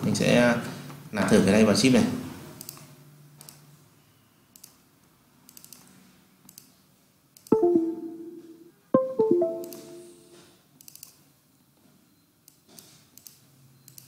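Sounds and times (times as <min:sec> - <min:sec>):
computer mouse clicks: 0:02.6 - 0:03.6
plucked string music: 0:07.5 - 0:10.4.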